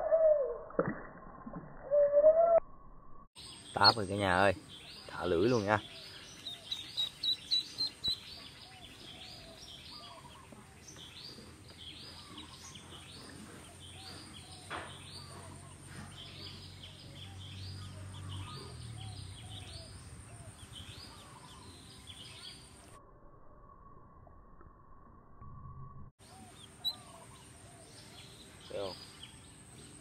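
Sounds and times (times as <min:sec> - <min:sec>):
duckling peeping: 0:06.4 - 0:09.0.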